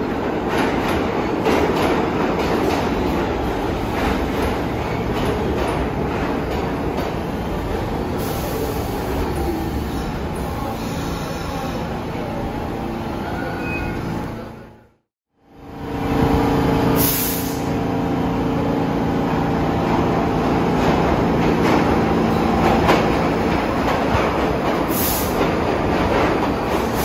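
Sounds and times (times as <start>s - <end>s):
subway train rumbling: 0.0s - 27.0s
air hiss: 17.0s - 17.8s, 24.9s - 25.4s.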